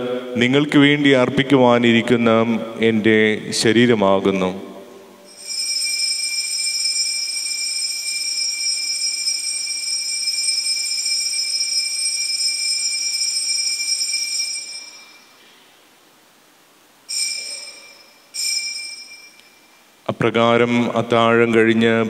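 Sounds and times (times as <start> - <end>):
altar bell ringing: 5.3 - 15.4, 17.1 - 20.0.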